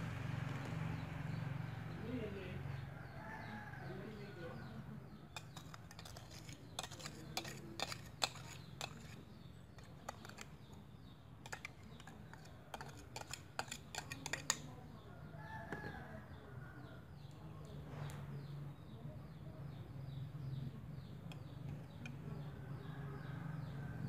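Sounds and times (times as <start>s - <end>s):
metal spoon clinking and scraping: 5.3s - 14.8s, 21.2s - 23.3s.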